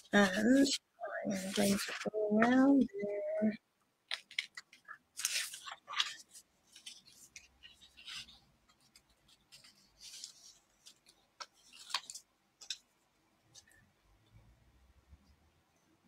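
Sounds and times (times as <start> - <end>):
paper rustling: 0.0 - 2.8, 4.1 - 12.9.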